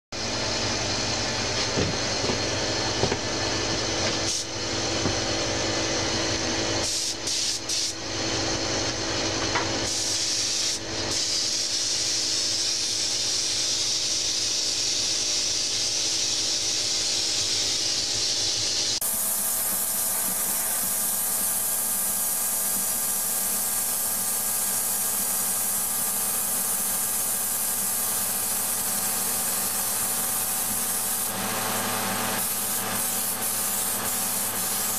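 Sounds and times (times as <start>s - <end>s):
steady machine hum: 0.1s - 34.9s
spray gun hissing: 6.8s - 8.0s, 9.8s - 34.9s.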